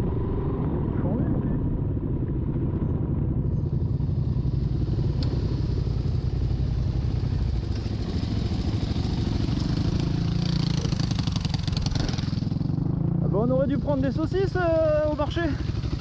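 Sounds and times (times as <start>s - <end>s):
motorcycle engine running at low speed: 0.0s - 16.0s
dirt bike riding past: 4.1s - 13.4s.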